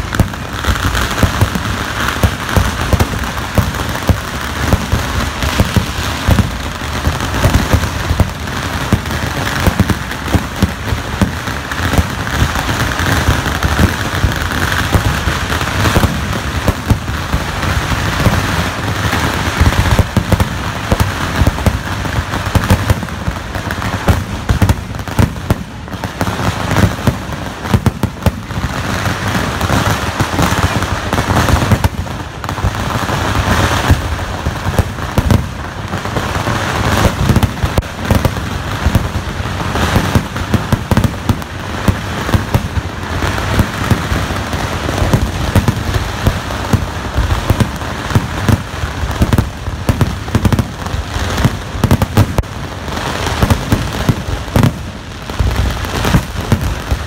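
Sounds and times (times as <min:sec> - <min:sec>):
fireworks bursting and crackling: 0:00.0 - 0:57.0.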